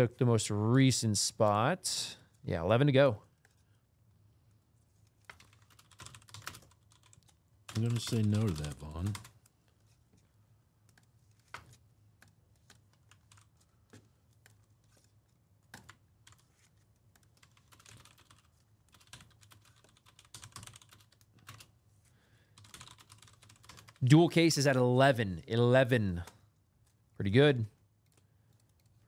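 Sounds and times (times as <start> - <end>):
typing on a keyboard: 5.2 - 9.4, 10.9 - 21.7, 22.5 - 24.0.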